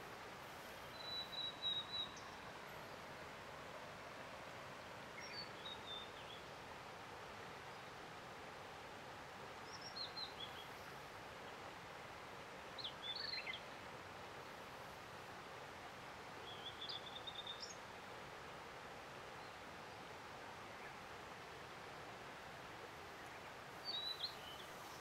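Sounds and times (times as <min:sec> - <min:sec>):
background hiss: 0:00.0 - 0:25.0
bird singing: 0:00.9 - 0:02.4, 0:23.3 - 0:25.0.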